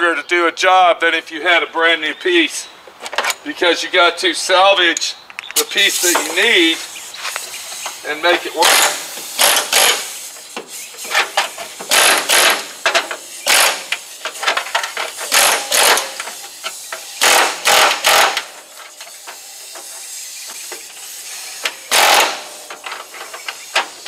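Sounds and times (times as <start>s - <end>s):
power tool cutting sheet metal: 8.6s - 14.1s, 15.1s - 18.6s, 21.2s - 22.7s.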